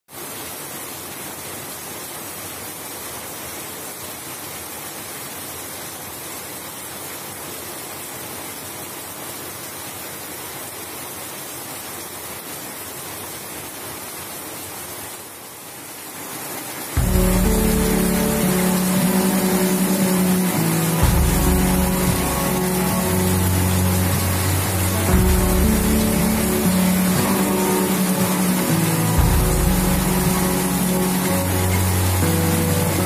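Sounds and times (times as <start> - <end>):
heavy rain falling: 0.1 - 33.0
water pouring off roof: 16.0 - 33.0.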